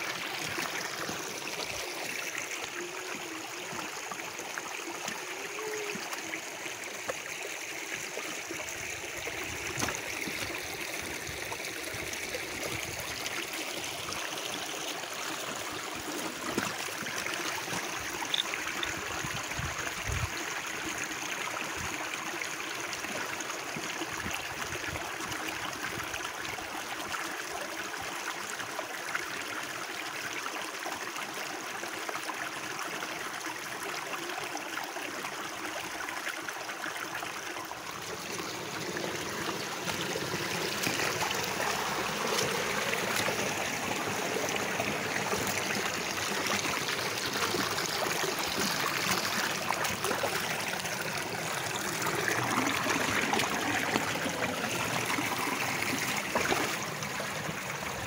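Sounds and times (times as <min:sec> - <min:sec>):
stream running over stones: 0:00.0 - 0:58.0.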